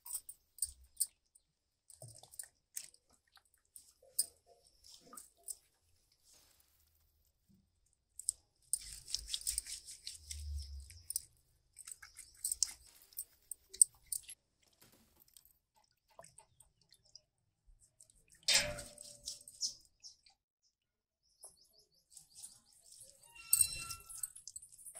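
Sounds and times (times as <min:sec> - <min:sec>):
crunching and scraping: 0:03.8 - 0:15.5.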